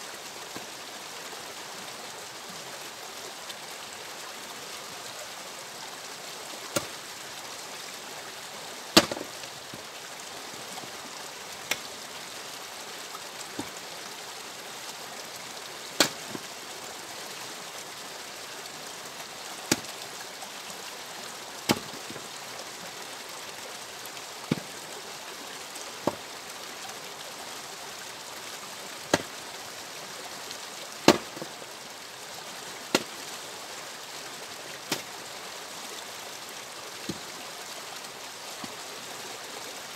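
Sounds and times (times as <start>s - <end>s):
steady background hiss: 0.0s - 39.9s
axe splitting firewood: 6.7s - 6.9s, 9.0s - 9.4s, 16.0s - 16.4s, 21.7s - 22.0s, 31.1s - 31.4s.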